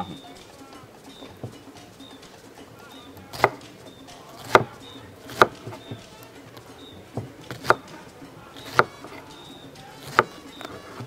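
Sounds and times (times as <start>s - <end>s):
knife chopping on wooden board: 3.3s - 3.8s, 4.4s - 11.0s.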